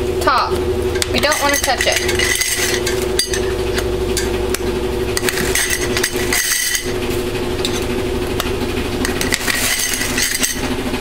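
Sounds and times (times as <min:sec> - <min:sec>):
steady hum: 0:00.0 - 0:11.0
metal tins and lids clinking: 0:01.0 - 0:04.3, 0:05.2 - 0:07.0, 0:09.0 - 0:10.7.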